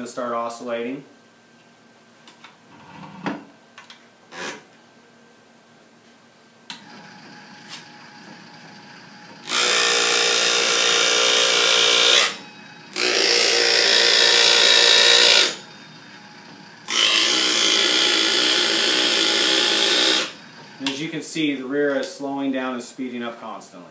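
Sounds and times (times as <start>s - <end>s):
small electric motor running: 9.2s - 20.8s.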